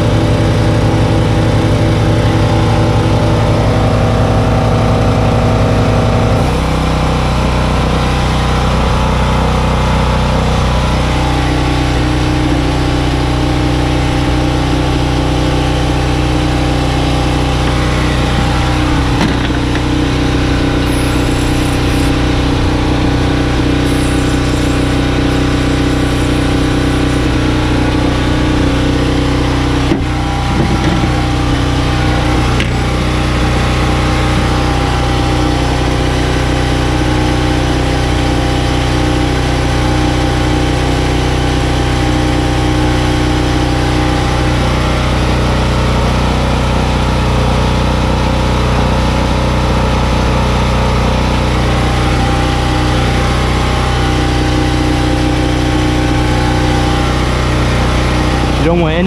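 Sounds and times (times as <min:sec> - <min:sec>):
engine idling: 0:00.0 - 0:59.0.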